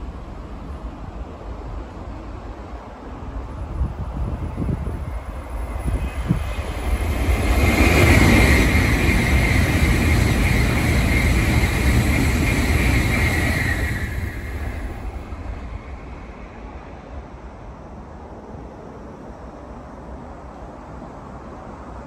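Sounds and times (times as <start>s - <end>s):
high-speed train passing: 0.0s - 22.0s.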